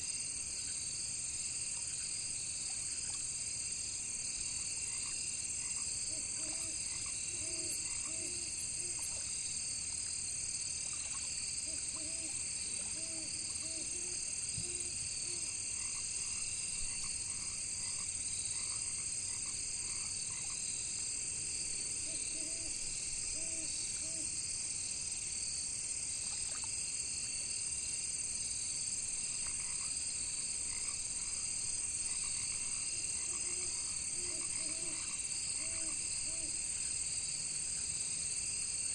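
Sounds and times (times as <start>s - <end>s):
crickets and insects chorus: 0.0s - 38.9s
frogs croaking: 4.4s - 9.6s, 10.8s - 20.8s, 22.0s - 24.4s, 29.2s - 36.7s.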